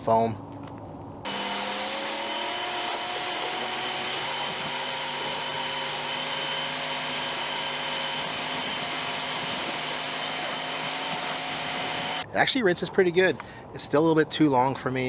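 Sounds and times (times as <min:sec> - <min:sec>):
pressure washer whine: 0:01.3 - 0:12.2.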